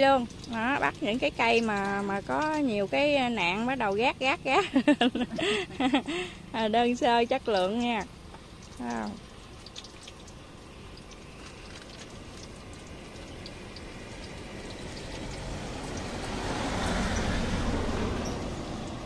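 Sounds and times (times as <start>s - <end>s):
fritters sizzling in hot oil: 0.0s - 19.0s
passing vehicle: 12.4s - 19.0s.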